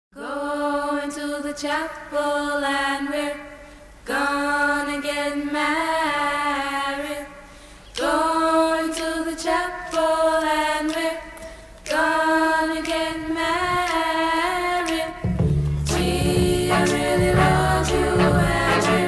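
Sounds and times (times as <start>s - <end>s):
women singing a cappella: 0.1s - 19.0s
bass line and beat: 15.3s - 19.0s.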